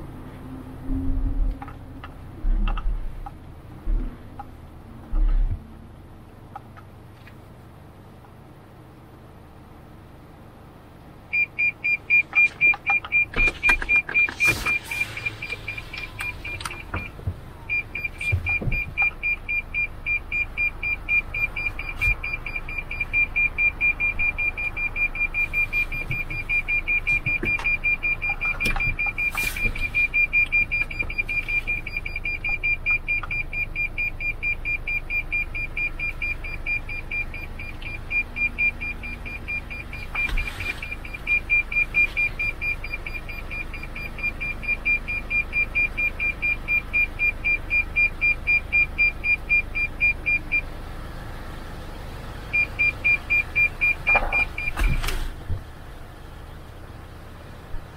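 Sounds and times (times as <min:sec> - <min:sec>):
parking sensor beeping rapidly: 0:11.3 - 0:50.7, 0:52.5 - 0:55.3.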